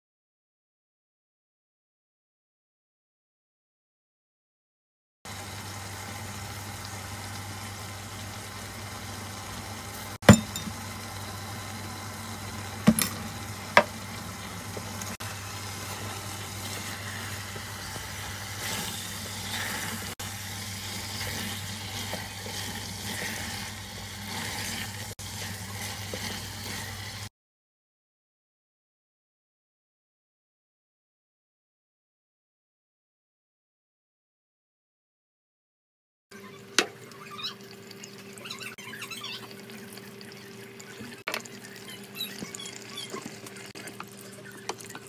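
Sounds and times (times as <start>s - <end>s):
vegetables and meat sizzling in pot: 5.3s - 27.3s, 36.4s - 45.0s
spatula stirring and scraping: 12.6s - 27.3s.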